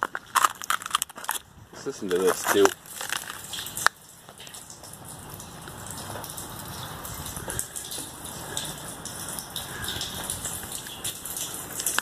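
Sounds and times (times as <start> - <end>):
water drops pattering: 0.0 - 12.0.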